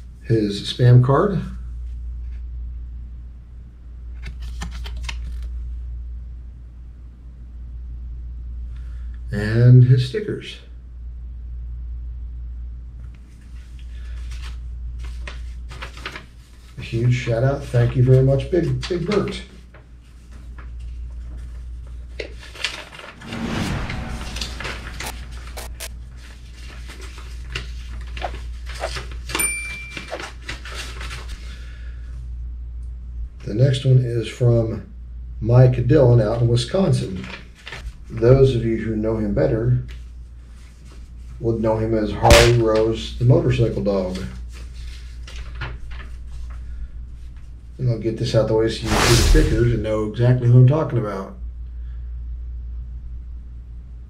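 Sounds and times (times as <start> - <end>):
low room hum: 0.0 - 54.0
paper card crackling: 4.2 - 5.5
paper rustling and crinkling: 4.2 - 5.5, 13.4 - 23.2, 25.6 - 29.4, 30.0 - 31.4, 37.2 - 38.0, 44.1 - 47.5
low hum: 23.0 - 26.8, 48.8 - 50.2.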